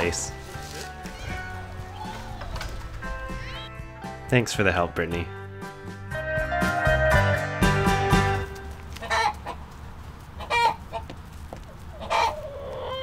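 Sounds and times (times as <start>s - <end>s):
hens clucking: 8.5s - 13.0s.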